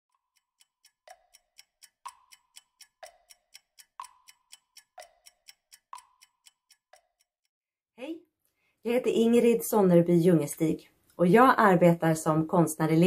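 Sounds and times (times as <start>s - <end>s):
clock-like ticking: 0.1s - 7.5s.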